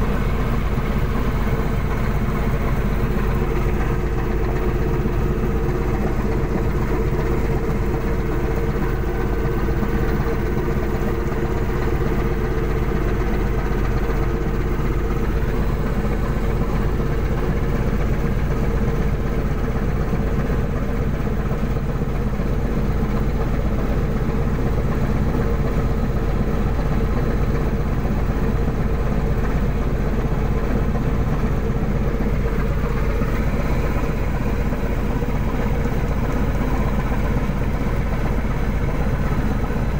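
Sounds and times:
boat engine drone: 0.0 - 39.9
line hauler running: 0.0 - 39.9.

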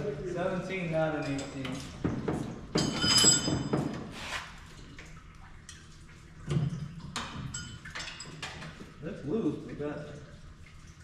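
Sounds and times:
bright ringing rattle: 2.8 - 3.7
metal tools clanking: 2.8 - 3.9.

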